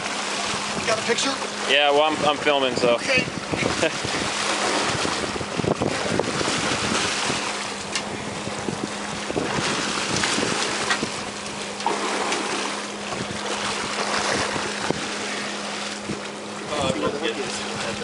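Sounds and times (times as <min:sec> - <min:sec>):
low boat hum: 0:00.0 - 0:18.0
water splashing along hull: 0:00.0 - 0:18.0
wind on microphone: 0:02.0 - 0:11.4, 0:13.1 - 0:15.2
fish thrashing against hull: 0:03.7 - 0:16.4.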